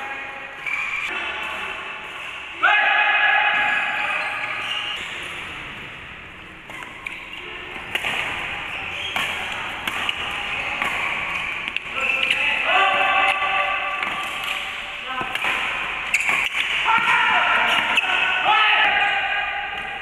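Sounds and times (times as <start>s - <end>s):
racket striking shuttlecock: 6.6s - 12.4s, 13.1s - 18.4s.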